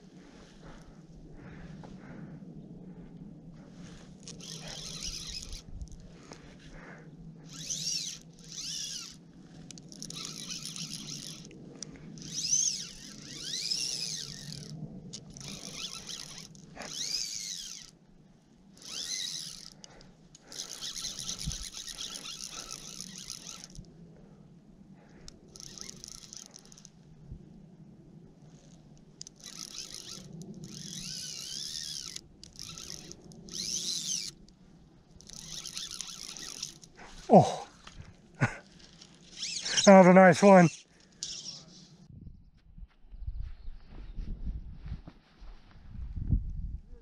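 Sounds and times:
fly line zipping through rod guides: 0:04.2 - 0:05.9, 0:07.4 - 0:11.6, 0:12.2 - 0:18.0, 0:18.7 - 0:23.9, 0:25.3 - 0:27.0, 0:28.5 - 0:38.0, 0:38.6 - 0:42.0.

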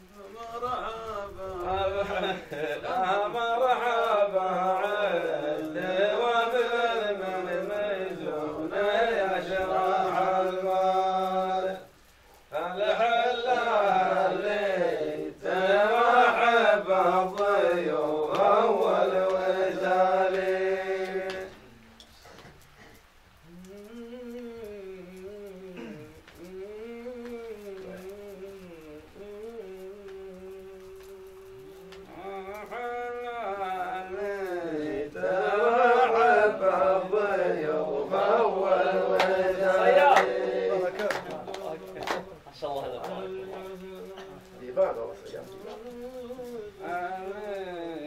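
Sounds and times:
man chanting poetry: 0:00.0 - 0:11.9, 0:12.5 - 0:22.0, 0:23.5 - 0:48.0.

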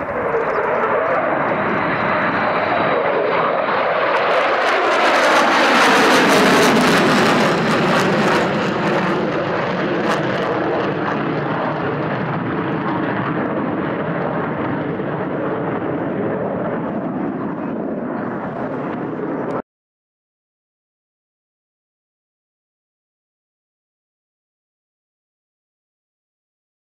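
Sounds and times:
jet fighters flying past: 0:00.0 - 0:19.6.

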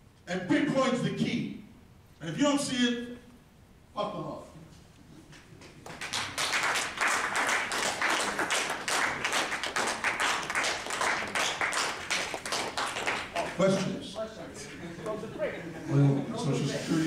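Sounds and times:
audience applauding: 0:05.6 - 0:14.0.

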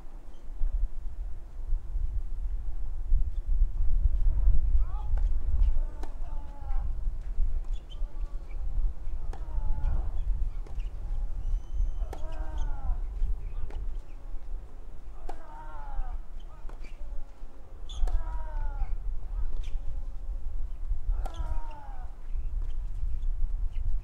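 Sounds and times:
steady low rumble: 0:00.0 - 0:17.8
racket striking tennis ball: 0:06.0 - 0:06.3, 0:09.2 - 0:09.7, 0:12.0 - 0:12.6, 0:13.6 - 0:14.1, 0:15.2 - 0:15.6, 0:17.9 - 0:18.4, 0:21.2 - 0:21.7.

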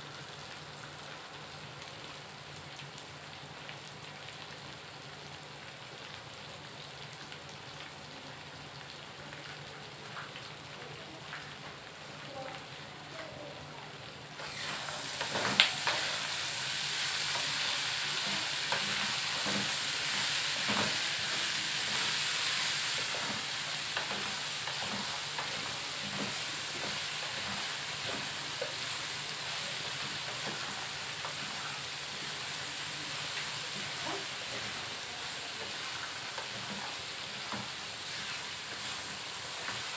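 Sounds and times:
food sizzling in oil: 0:00.0 - 0:39.9
spatula knocking and scraping pan: 0:20.6 - 0:21.1.

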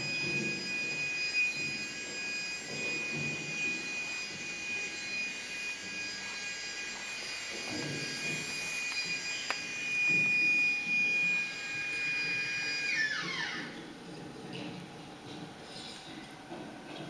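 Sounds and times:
high-pitched whine: 0:00.0 - 0:16.6.

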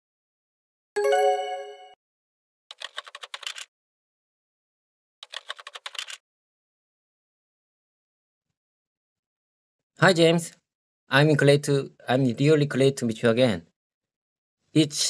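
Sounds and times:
ringing chime: 0:01.0 - 0:02.0
rapid keyboard typing clicks: 0:02.7 - 0:03.7, 0:05.2 - 0:06.2.

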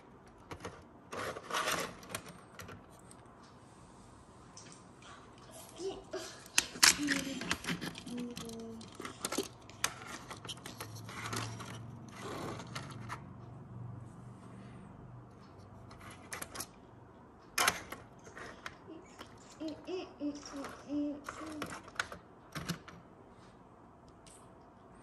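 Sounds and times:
toy car clicking on plastic: 0:06.4 - 0:13.3, 0:20.5 - 0:22.9.

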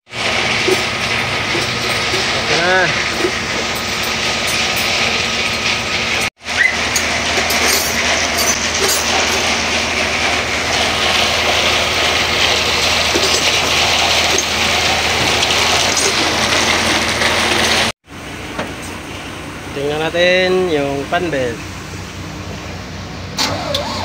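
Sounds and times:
diesel truck engine running: 0:00.1 - 0:24.0.

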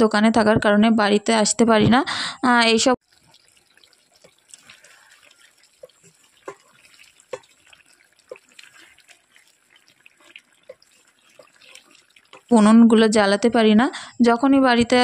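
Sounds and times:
spatula scraping metal pot: 0:04.2 - 0:12.8.

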